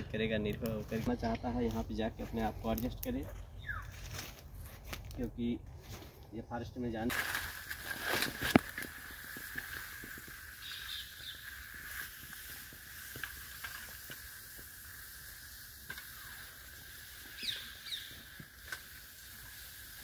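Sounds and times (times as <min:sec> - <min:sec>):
rustles in dry leaves: 0:00.0 - 0:20.0.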